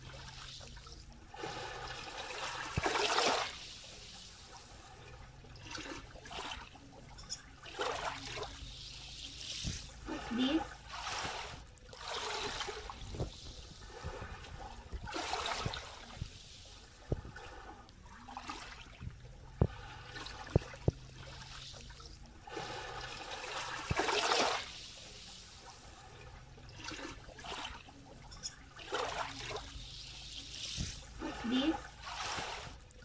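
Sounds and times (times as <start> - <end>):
small waves lapping on sand: 0.0 - 7.0, 7.7 - 33.0.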